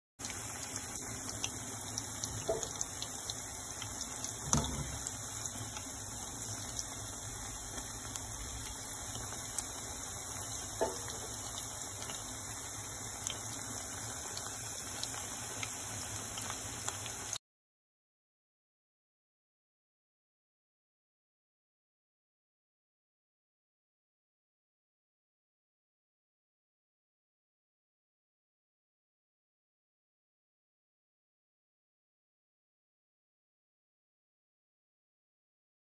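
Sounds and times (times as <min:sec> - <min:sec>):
fritters sizzling in hot oil: 0:00.2 - 0:17.4.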